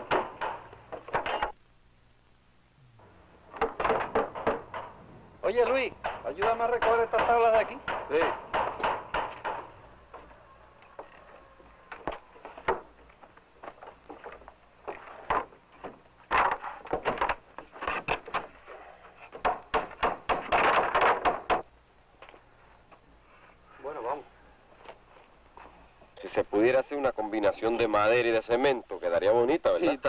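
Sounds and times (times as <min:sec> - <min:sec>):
wooden boards knocking and clattering: 0:00.0 - 0:01.5, 0:03.5 - 0:05.0, 0:05.9 - 0:10.3, 0:11.9 - 0:21.7.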